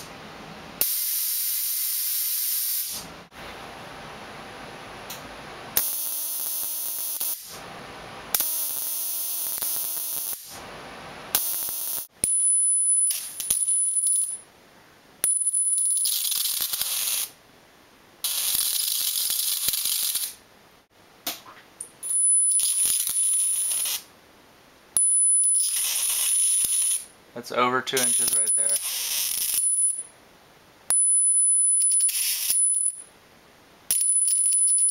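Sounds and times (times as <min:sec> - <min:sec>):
electric arc crackling: 0:05.8 - 0:07.6, 0:08.3 - 0:10.6, 0:11.3 - 0:12.1, 0:15.8 - 0:17.4, 0:18.2 - 0:20.4, 0:22.5 - 0:24.1, 0:25.5 - 0:27.1, 0:27.9 - 0:30.0, 0:31.8 - 0:33.0.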